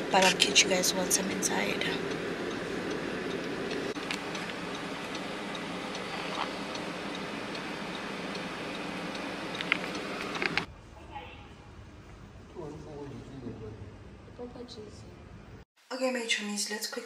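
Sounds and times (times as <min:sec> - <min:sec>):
low engine hum: 0:00.0 - 0:10.8
car indicator ticking: 0:00.2 - 0:10.7.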